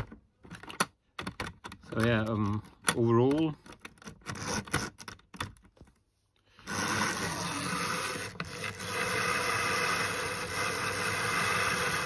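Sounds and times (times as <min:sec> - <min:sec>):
clicks and taps of handling: 0:00.0 - 0:06.0
small electric motor running: 0:06.6 - 0:12.0.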